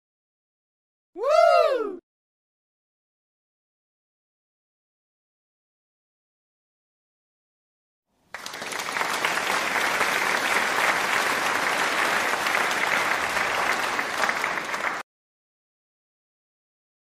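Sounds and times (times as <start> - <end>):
crowd applauding: 8.2 - 15.0.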